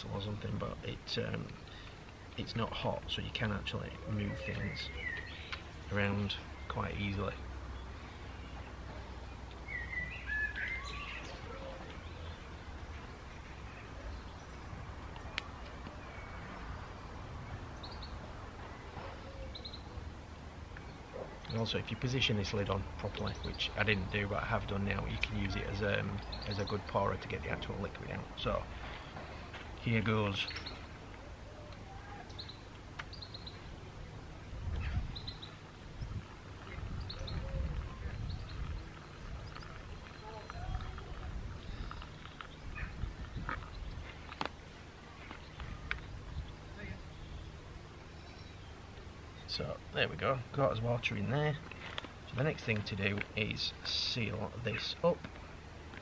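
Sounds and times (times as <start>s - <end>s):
small birds chirping: 0.0s - 56.0s
bird singing whistled notes: 4.1s - 5.6s, 9.6s - 12.5s.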